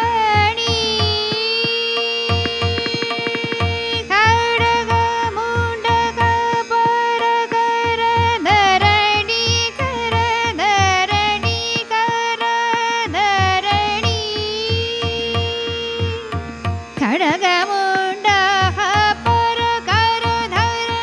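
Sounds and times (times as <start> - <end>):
woman singing classical melody: 0.0 - 21.0
low rhythmic drum beat: 0.8 - 6.1.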